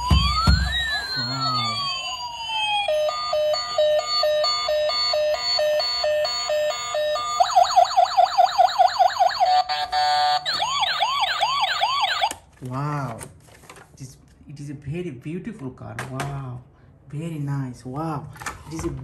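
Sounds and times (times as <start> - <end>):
toy police car siren: 0.0 - 12.4.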